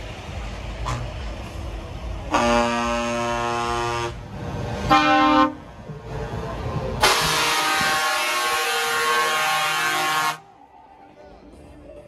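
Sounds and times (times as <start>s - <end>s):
diesel engine running: 0.0s - 12.0s
truck air horn blasts: 0.8s - 1.2s, 2.3s - 4.2s, 4.8s - 5.6s, 7.0s - 10.5s.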